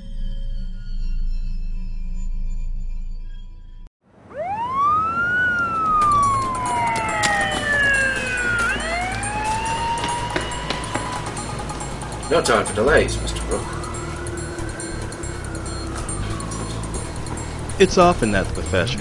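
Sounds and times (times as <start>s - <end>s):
low ambient music drone: 0.0s - 19.0s
siren wailing: 4.1s - 19.0s
steady rushing background: 4.4s - 19.0s.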